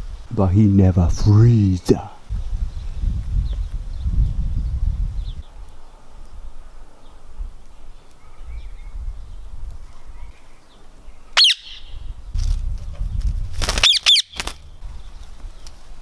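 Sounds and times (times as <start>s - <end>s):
low microphone rumble: 0.0s - 13.7s, 14.5s - 16.0s
parakeet squawking: 11.4s - 12.0s, 13.8s - 14.4s.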